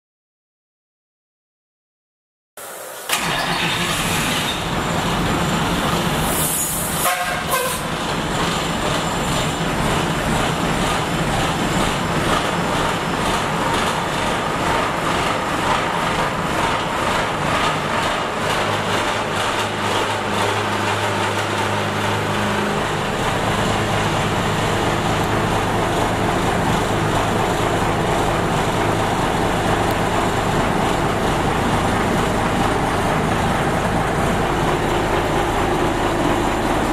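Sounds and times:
brief hiss: 2.6 - 4.6, 6.2 - 7.8
truck engine running: 3.1 - 36.9.

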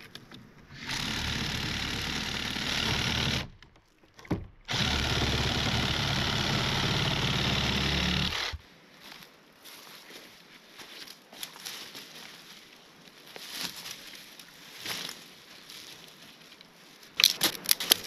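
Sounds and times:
reciprocating saw cutting log: 0.0 - 8.6.

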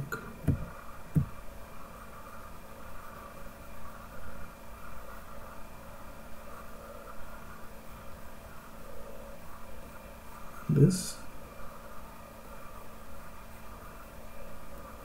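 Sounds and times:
room hum and hiss: 0.0 - 15.0
soft low thump: 0.1 - 1.4.

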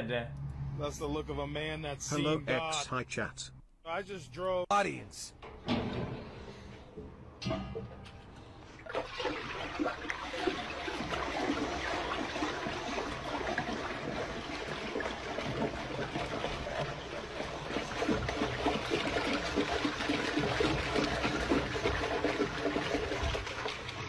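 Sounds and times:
toilet flushing: 8.8 - 24.0.

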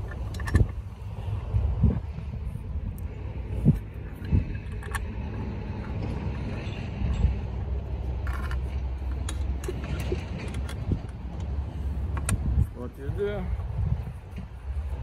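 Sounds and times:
hand tool metallic clicks: 0.0 - 0.9, 3.7 - 7.3, 8.2 - 12.5
steady low rumble: 0.0 - 15.0.

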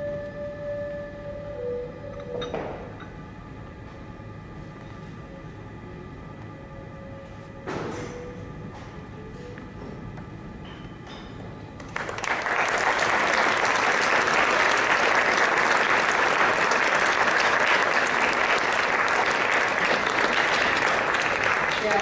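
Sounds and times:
faint music: 0.0 - 22.0
audience applauding: 11.8 - 22.0.

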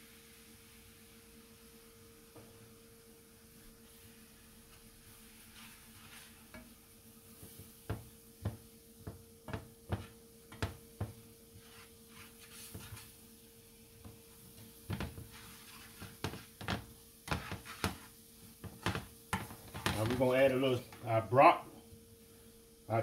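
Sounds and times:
wooden spatula scraping frying pan: 4.7 - 6.7, 11.6 - 13.1, 14.8 - 20.4.

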